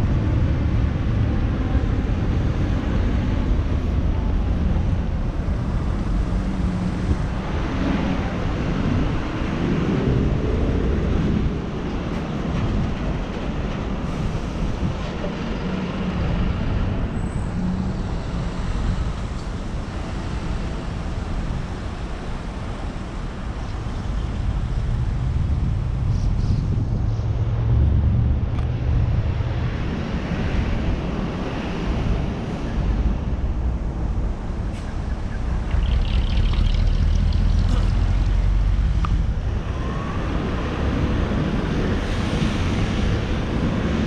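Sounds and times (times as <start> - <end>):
cars and trucks passing: 0.0 - 44.0
vehicle engine speeding up: 35.4 - 44.0.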